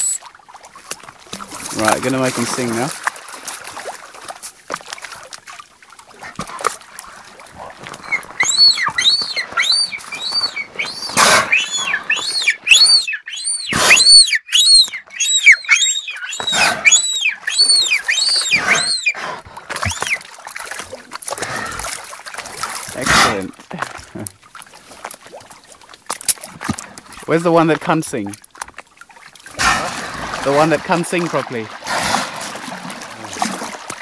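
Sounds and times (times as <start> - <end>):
whale high chirps: 0.0 - 0.3, 8.0 - 20.3
water splashing: 0.0 - 34.0.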